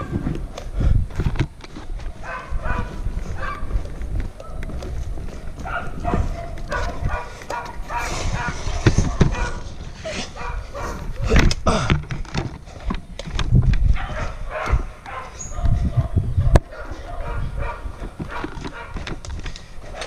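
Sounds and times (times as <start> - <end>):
heavy thuds and rustling: 1.0 - 10.1
dog barking: 2.2 - 3.7, 5.6 - 9.7, 10.3 - 11.1, 14.0 - 19.0.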